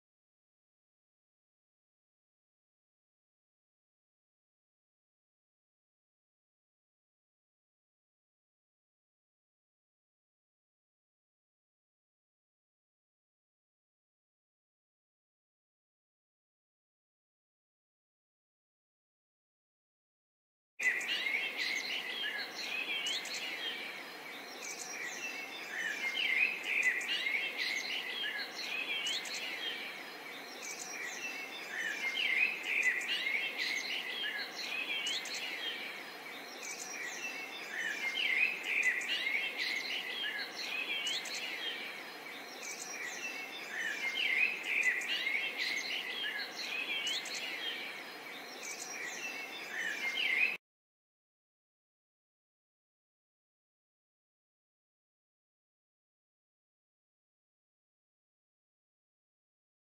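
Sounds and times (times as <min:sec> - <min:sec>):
outdoor ambience hiss: 0:20.8 - 0:50.6
small birds chirping: 0:20.8 - 0:50.6.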